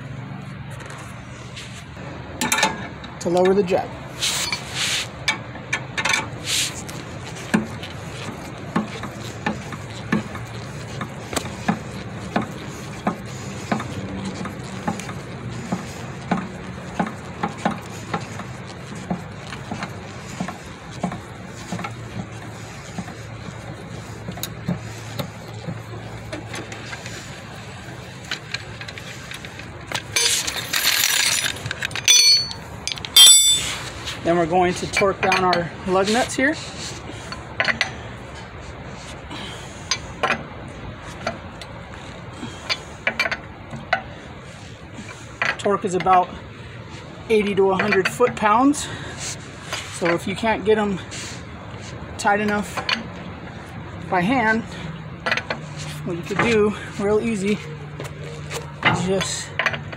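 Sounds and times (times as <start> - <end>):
loud burst of clinks: 30.2 - 33.8.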